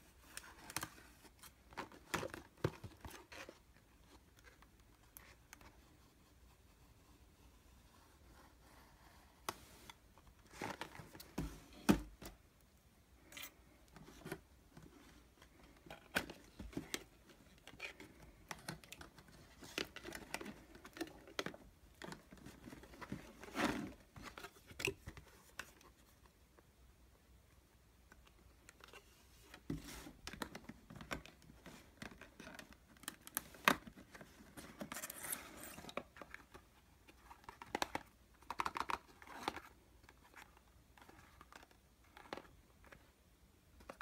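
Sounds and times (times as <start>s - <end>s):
paper and cardboard rustling: 13.2s - 26.2s, 28.7s - 43.1s.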